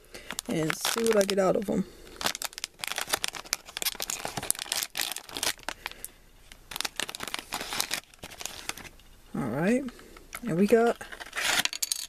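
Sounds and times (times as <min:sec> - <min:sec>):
plastic bag crinkling and tearing: 0:00.0 - 0:08.9.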